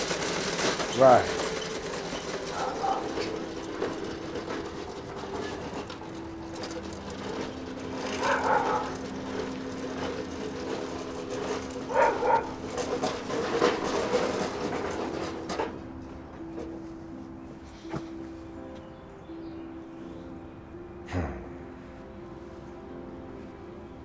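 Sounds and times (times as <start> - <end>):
soft film score of low notes: 15.9 - 24.0.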